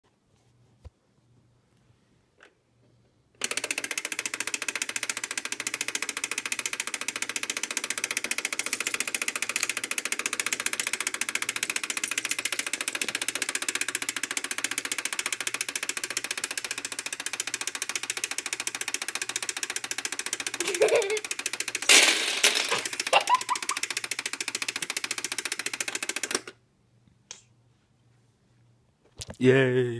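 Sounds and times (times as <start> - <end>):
wind-up timer ticking: 3.4 - 21.9, 22.7 - 26.6
loud clatter: 21.7 - 23.2.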